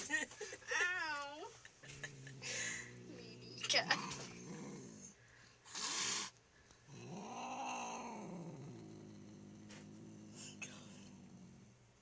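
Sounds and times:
cat growling: 1.9 - 12.0
cat hissing: 2.4 - 6.4.

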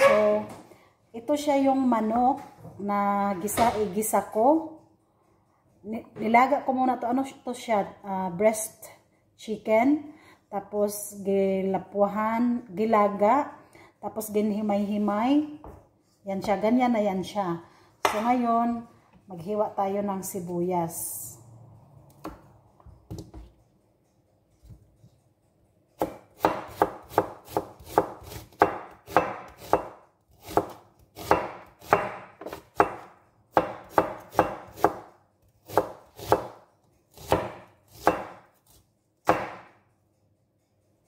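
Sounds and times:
knife slicing onion on board: 26.0 - 39.8.

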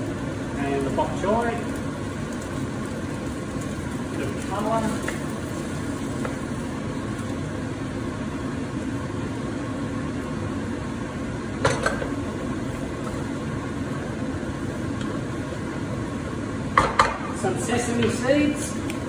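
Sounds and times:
gas burner rushing: 0.0 - 19.0
noodles tossed in frying pan: 1.2 - 7.6.

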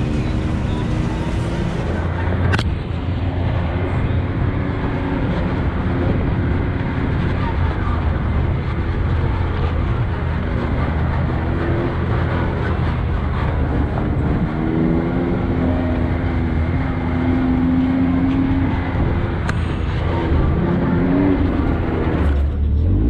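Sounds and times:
side-by-side engine running: 0.0 - 23.0.

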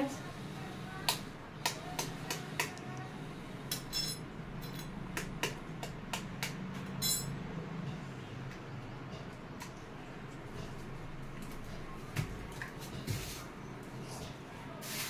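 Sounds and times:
metallic clink: 3.7 - 5.0, 6.8 - 7.4
egg tapping on metal bowl: 5.1 - 6.8.

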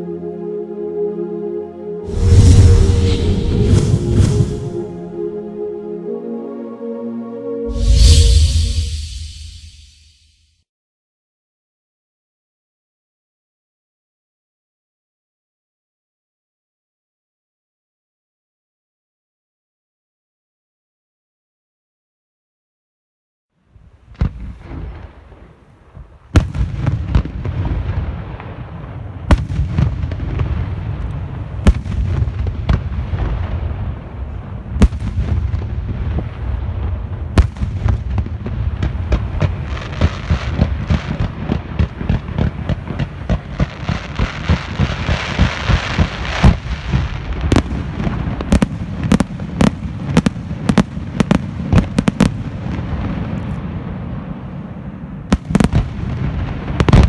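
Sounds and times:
fireworks booming and crackling: 2.1 - 4.9, 24.1 - 57.0
sharp loud firework reports: 2.1 - 5.0, 7.7 - 10.2.

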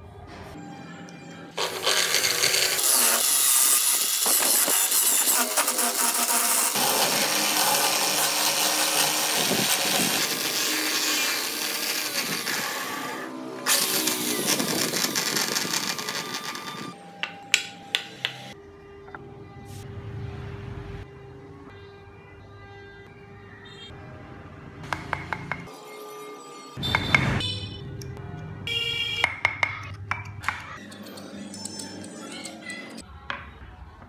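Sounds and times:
electric drill spinning: 1.6 - 17.0.

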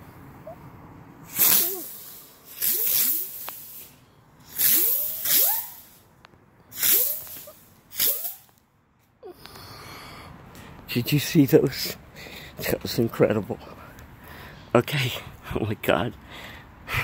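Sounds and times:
firework spinners hissing: 1.2 - 6.1, 6.7 - 8.6.

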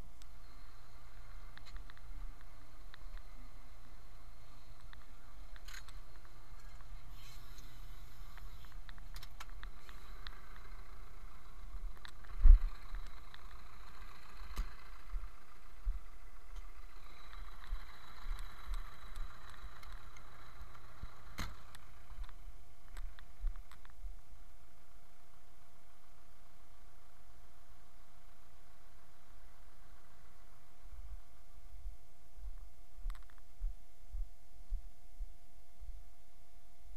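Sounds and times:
tractor diesel engine idling: 0.0 - 23.6, 25.6 - 31.2.

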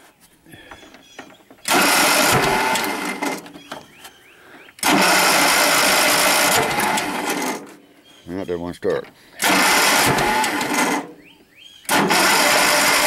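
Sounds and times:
electric starter cranking engine: 1.6 - 3.6, 4.8 - 7.8, 9.4 - 11.2, 11.8 - 13.0.

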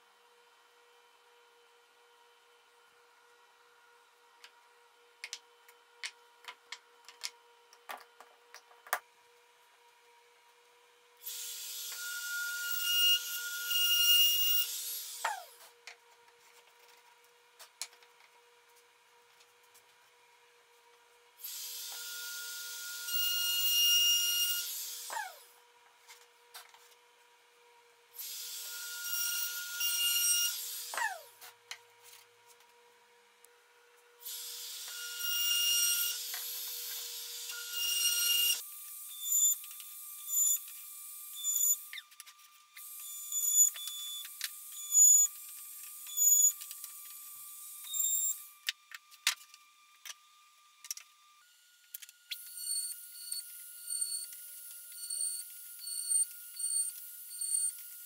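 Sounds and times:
router whining while cutting wood: 34.3 - 42.2, 42.8 - 48.6, 51.4 - 58.0.

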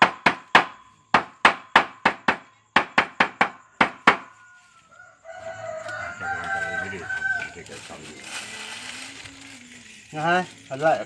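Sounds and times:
chopping on wooden block: 0.0 - 4.3
rooster crowing: 3.6 - 8.9.

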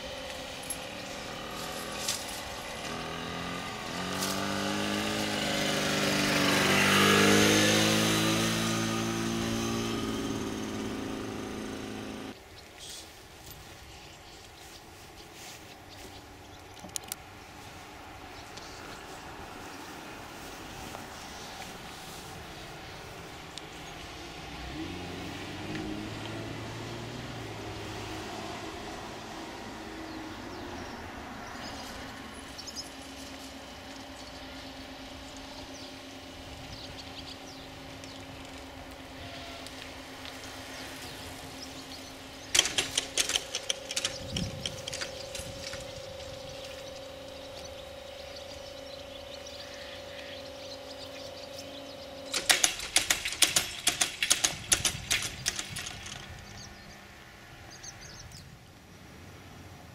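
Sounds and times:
barrier drive humming: 0.0 - 13.1, 14.4 - 58.6
birds chirping: 0.0 - 59.1
outdoor background noise: 0.0 - 59.9
metallic clattering of barriers: 42.5 - 45.9, 52.3 - 56.4.

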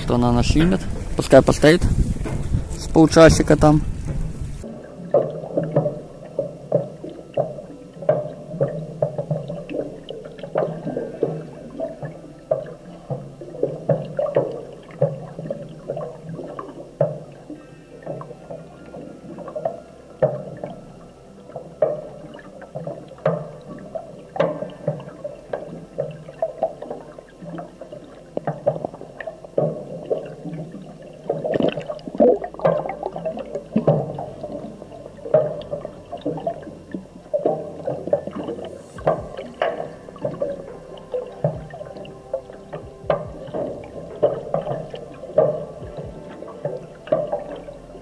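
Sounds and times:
muffled underwater gurgling: 0.0 - 48.0.

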